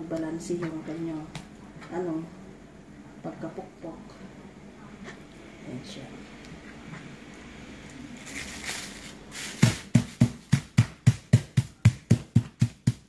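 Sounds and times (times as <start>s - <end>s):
plastic film crinkling: 8.1s - 10.2s
meat mallet pounding: 9.6s - 13.0s.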